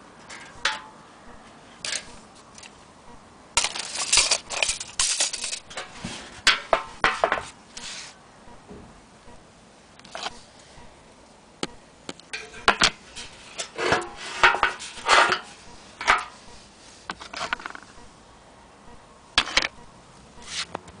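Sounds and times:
metal horn knocking and clanking: 0.2 - 1.0, 13.6 - 16.4.

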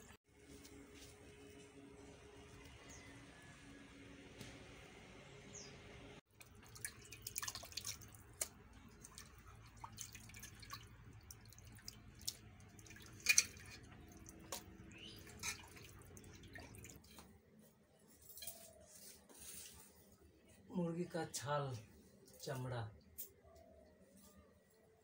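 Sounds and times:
small wet clicks: 6.3 - 17.3
water dripping and splashing: 6.3 - 17.3.

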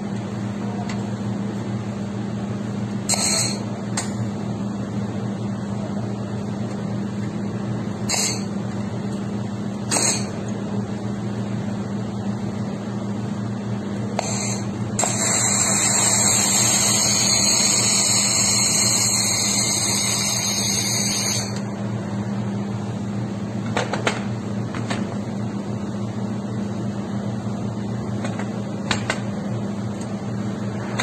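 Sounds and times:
welding machine low hum: 0.0 - 31.0
laser welder hissing with whine: 3.1 - 3.8, 8.1 - 8.6, 9.9 - 10.4, 14.1 - 21.7.

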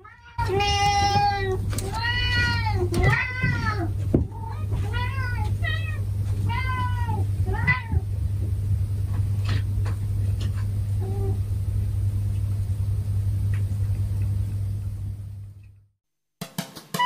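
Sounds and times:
cat meowing: 0.0 - 8.1
steady low hum: 0.0 - 16.0.

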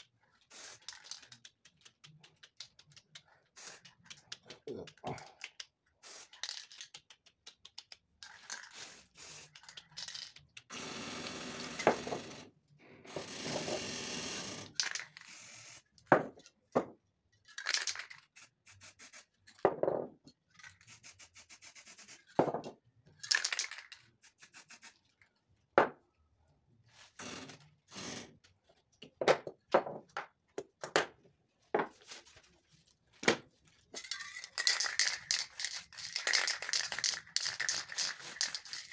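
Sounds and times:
cans and stencils clicking: 0.0 - 12.4, 14.5 - 16.6, 17.4 - 25.2, 33.9 - 38.9
spray paint cans hissing: 0.0 - 12.4, 14.0 - 16.0, 17.6 - 19.5, 20.7 - 22.4, 23.2 - 25.1, 34.0 - 38.9.

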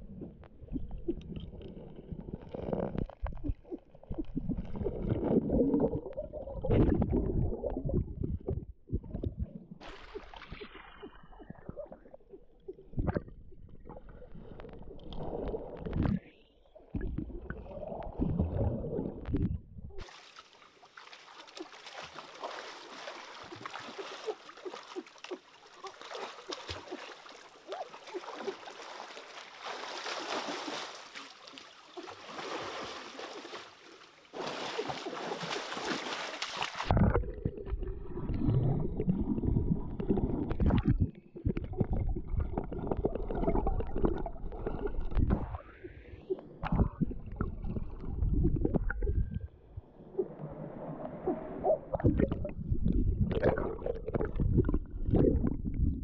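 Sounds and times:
muffled underwater rumbling: 0.0 - 20.0, 36.8 - 56.0
water sloshing and gurgling: 0.0 - 56.0.

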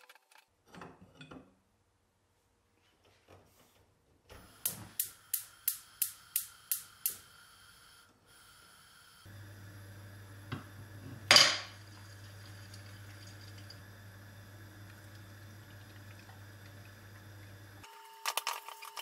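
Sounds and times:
gas igniter clicking: 4.6 - 7.2.

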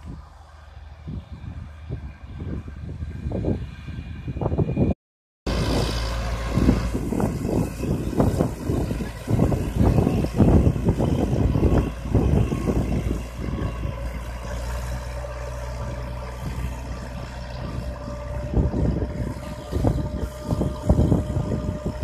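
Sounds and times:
wind buffeting microphone: 0.0 - 22.0
tractor engine under load: 5.5 - 22.0.

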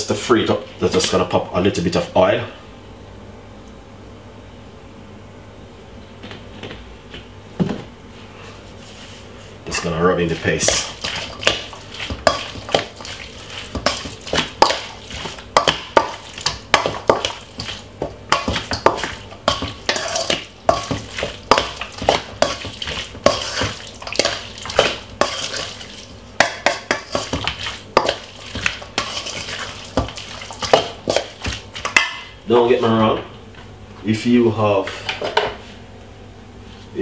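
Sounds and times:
metal spoon scraping bowl: 18.4 - 25.8.

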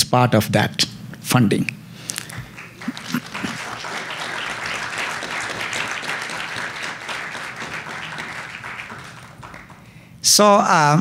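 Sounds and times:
audience applauding: 2.2 - 10.0.

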